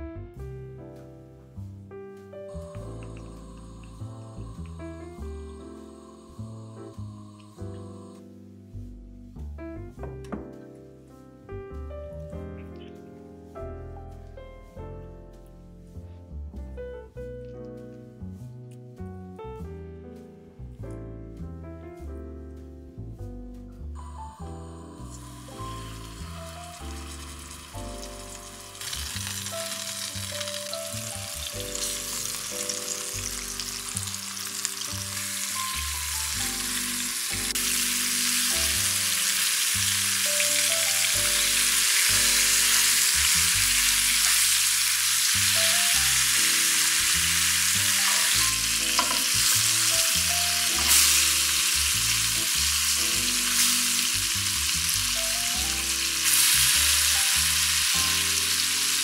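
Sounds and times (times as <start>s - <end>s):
soft background music: 0.0s - 59.0s
food sizzling in oil: 2.5s - 8.1s, 24.1s - 59.0s.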